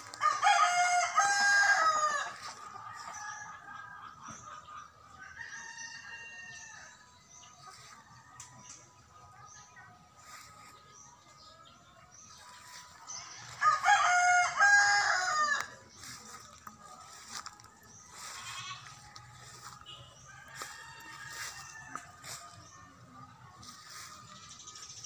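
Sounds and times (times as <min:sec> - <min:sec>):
rooster crowing: 0:00.2 - 0:02.4, 0:13.6 - 0:15.7.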